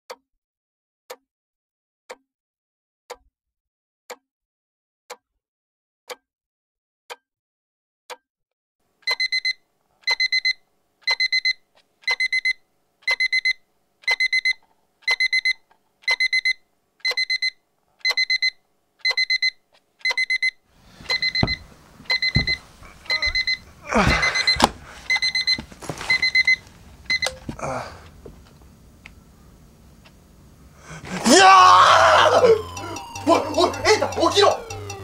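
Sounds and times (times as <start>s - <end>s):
alarm clock beeping: 9.1s - 27.4s, 32.1s - 35.0s
clock ticking: 21.1s - 23.6s, 32.2s - 35.0s.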